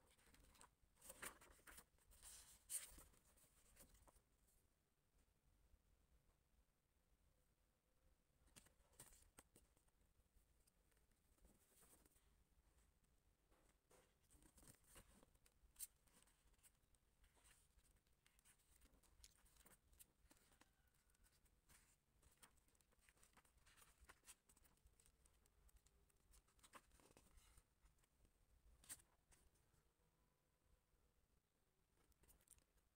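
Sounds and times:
book pages rustling: 0:00.0 - 0:04.2, 0:08.5 - 0:10.0, 0:10.6 - 0:12.9, 0:13.5 - 0:29.6.

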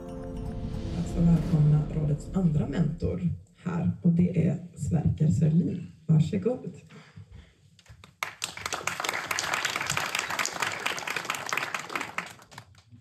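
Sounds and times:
audience applauding: 0:08.0 - 0:12.9.

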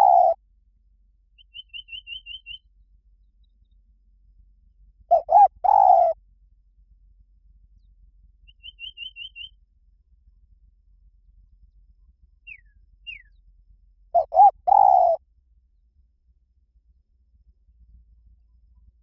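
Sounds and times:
dove cooing: 0:00.0 - 0:00.4, 0:05.1 - 0:06.2, 0:14.2 - 0:15.2
small bird chirping: 0:00.0 - 0:00.4, 0:01.4 - 0:03.8, 0:05.1 - 0:06.2, 0:07.8 - 0:09.6, 0:12.4 - 0:13.5, 0:14.2 - 0:15.2.

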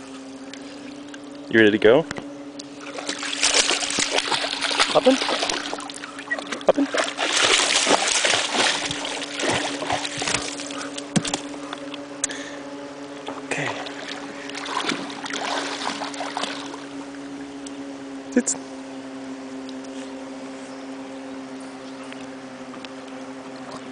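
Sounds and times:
low hum: 0:00.0 - 0:23.9
water splashing and dripping: 0:02.8 - 0:11.4.

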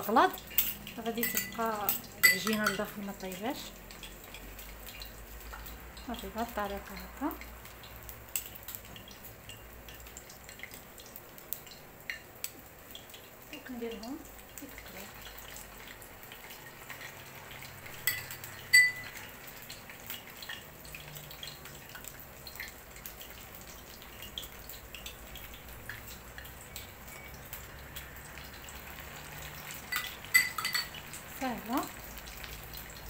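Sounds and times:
frying oil crackling: 0:00.0 - 0:33.0
metal spoons clinking on bowl: 0:00.5 - 0:03.0, 0:18.0 - 0:19.2, 0:29.8 - 0:31.0.

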